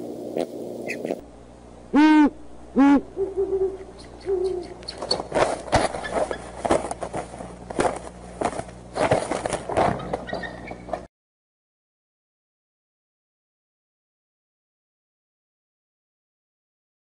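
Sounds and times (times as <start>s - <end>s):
owl hooting: 0.0s - 1.2s, 1.9s - 5.3s
scratchy rustling: 4.8s - 9.9s.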